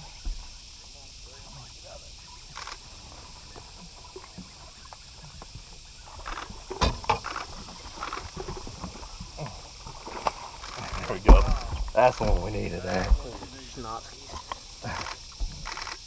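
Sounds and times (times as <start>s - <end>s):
sharp thump on boat: 6.7s - 7.2s, 11.2s - 13.4s.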